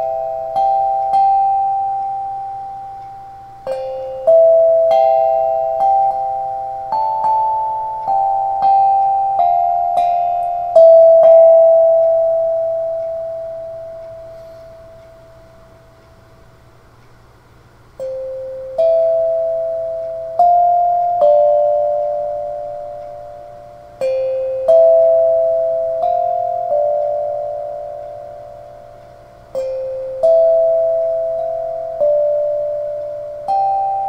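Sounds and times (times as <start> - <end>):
steel tongue drum melody: 0.0 - 34.0.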